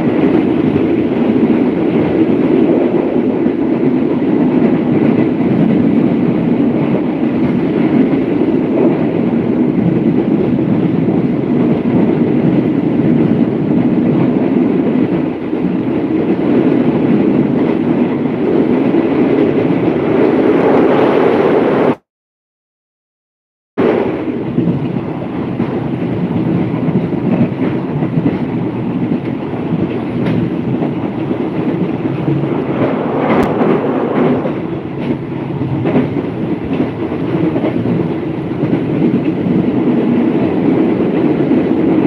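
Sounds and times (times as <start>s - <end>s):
train wheels rumbling on rails: 0.0s - 22.0s, 23.8s - 42.0s
rushing air: 15.2s - 22.0s, 28.6s - 42.0s.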